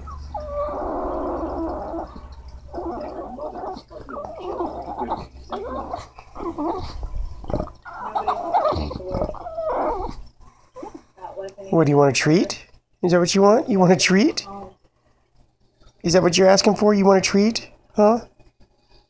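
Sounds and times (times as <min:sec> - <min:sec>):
dog grumbling vocally: 0:00.0 - 0:11.0.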